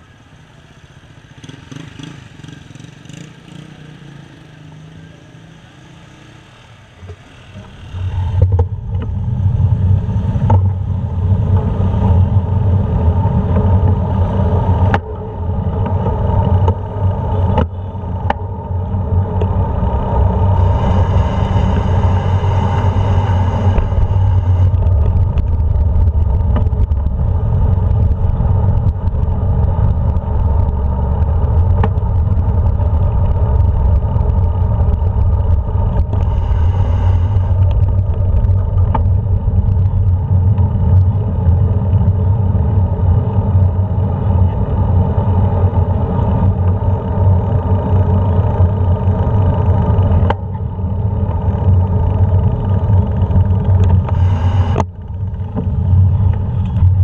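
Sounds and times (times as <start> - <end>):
wind and road noise rumble: 0.0 - 57.0
motor hum: 17.4 - 40.6.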